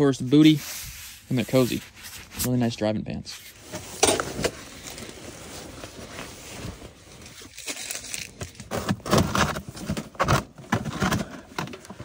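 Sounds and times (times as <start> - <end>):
fabric rustling: 3.5 - 8.2
plastic cooler knocks and scrapes: 8.6 - 12.0.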